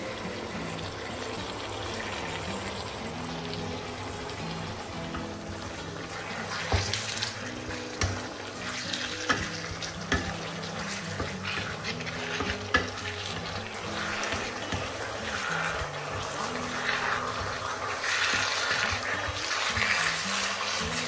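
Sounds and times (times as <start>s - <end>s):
meat sizzling in oil: 0.0s - 21.0s
spatula stirring in pan: 4.3s - 21.0s
spatula clicking against pan: 9.0s - 15.0s.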